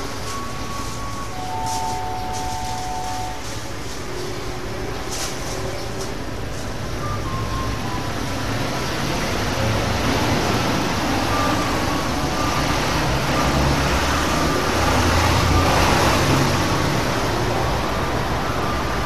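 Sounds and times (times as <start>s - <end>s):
faint short high tones: 0.3s - 3.7s.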